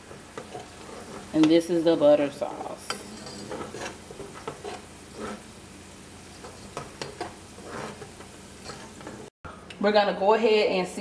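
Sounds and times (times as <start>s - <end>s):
wooden spoon scraping a pan: 0.0s - 5.6s, 6.2s - 9.3s
low sizzle: 0.0s - 11.0s.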